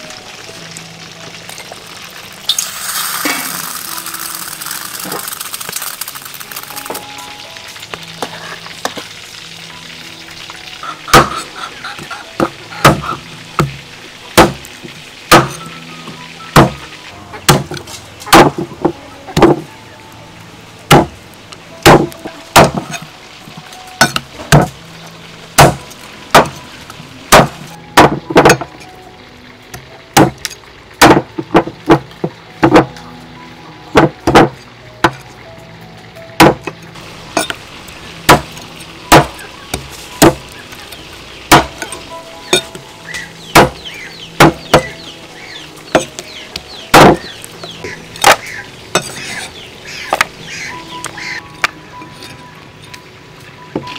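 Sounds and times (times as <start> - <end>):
faint background music: 0.0 - 53.9
cleaver chopping on wooden block: 43.5 - 43.8.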